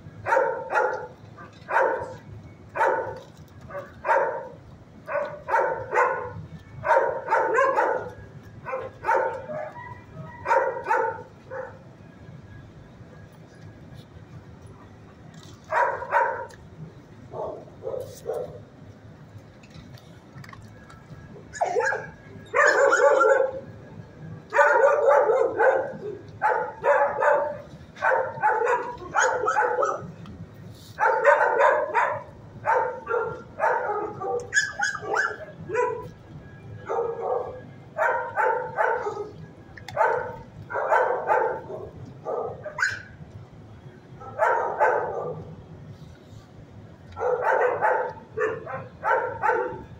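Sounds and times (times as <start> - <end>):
dog barking: 0.2 - 2.2, 2.8 - 11.8, 15.7 - 16.5, 17.3 - 18.6, 21.6 - 23.6, 24.5 - 30.1, 31.0 - 36.1, 36.9 - 39.4, 40.0 - 43.1, 44.2 - 45.5, 47.2 - 49.9.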